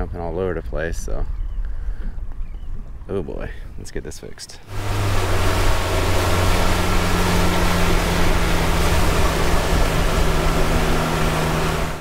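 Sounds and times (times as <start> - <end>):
outboard motor drone: 4.6 - 12.0
wind and water rushing: 4.6 - 12.0.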